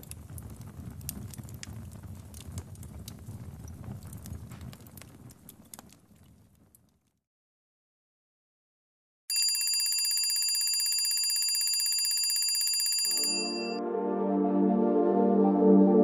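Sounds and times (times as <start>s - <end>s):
electronic alarm trilling: 9.3s - 13.8s
soft ambient music: 13.8s - 16.0s.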